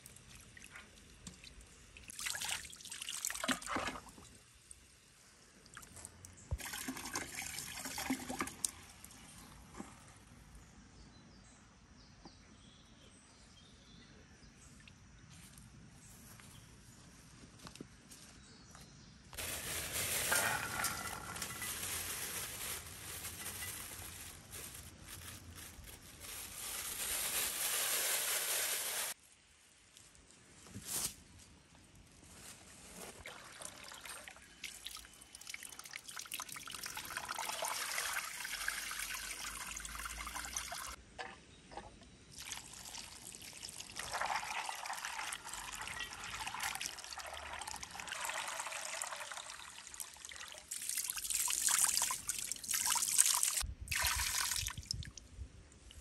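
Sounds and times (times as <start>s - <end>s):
water trickling and pouring: 5.7s - 9.3s, 19.4s - 24.3s, 33.2s - 41.0s, 42.3s - 55.2s.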